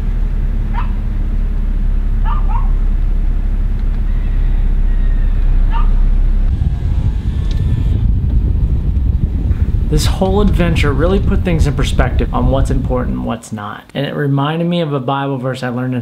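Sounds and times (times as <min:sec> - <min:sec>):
low rumble: 0:00.0 - 0:13.4
dog barking: 0:00.7 - 0:01.0, 0:02.2 - 0:02.8, 0:05.6 - 0:06.0.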